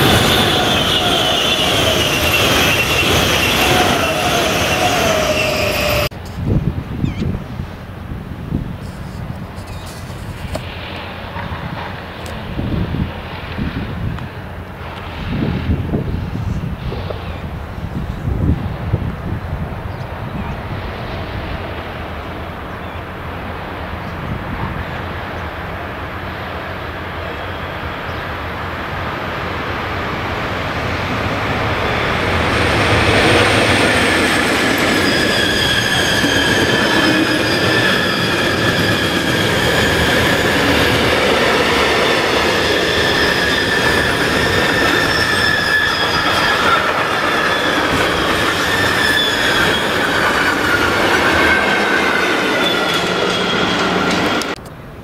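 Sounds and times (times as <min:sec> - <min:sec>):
high wheel squealing: 0:00.0 - 0:06.1, 0:30.7 - 0:54.6
train wheels rumbling on rails: 0:00.0 - 0:55.0.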